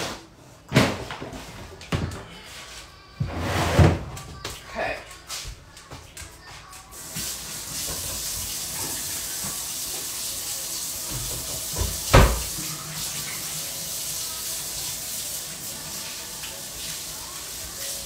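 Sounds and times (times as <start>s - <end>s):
tap running into sink: 7.2s - 10.1s, 11.0s - 13.5s.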